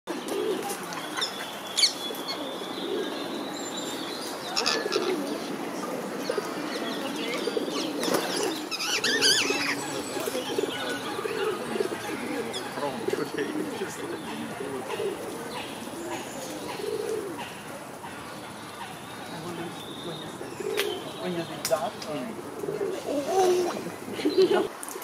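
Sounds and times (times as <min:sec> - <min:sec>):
pigeons cooing: 0:00.1 - 0:25.0
parakeets squawking: 0:07.5 - 0:19.8.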